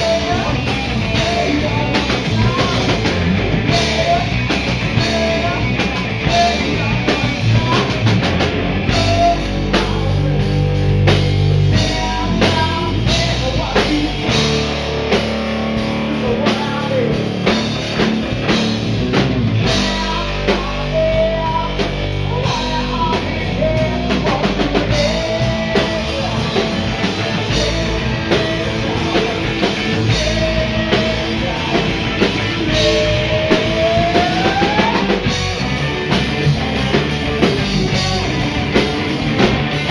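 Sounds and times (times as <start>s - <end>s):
man singing: 0.0s - 14.7s, 15.7s - 18.4s, 19.4s - 39.9s
bass guitar: 0.0s - 39.9s
distorted electric guitars: 0.0s - 39.9s
drum kit beat: 0.0s - 39.9s.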